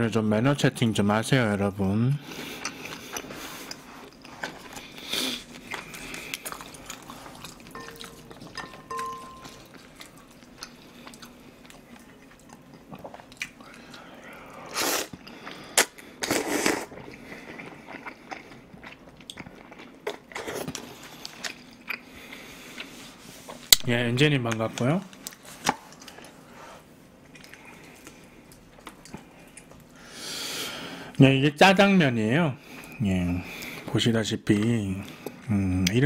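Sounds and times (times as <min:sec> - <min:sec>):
wet chewing and mouth clicks: 0:02.4 - 0:23.0, 0:27.2 - 0:30.0
slurping noodles: 0:14.6 - 0:17.5.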